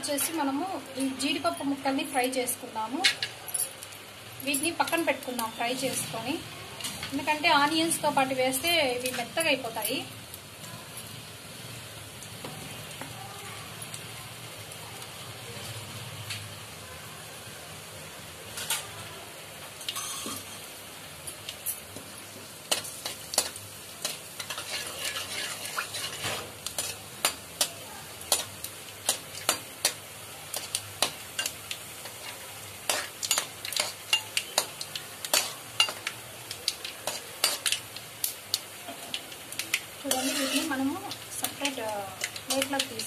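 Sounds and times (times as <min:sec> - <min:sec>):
nuts sizzling in hot oil: 0:00.0 - 0:43.0
metal spatula scraping pan: 0:22.8 - 0:27.1, 0:40.0 - 0:41.1.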